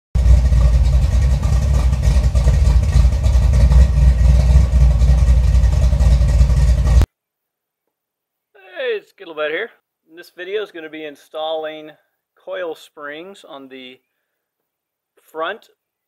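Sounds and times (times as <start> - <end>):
car engine running: 0.1 - 7.1.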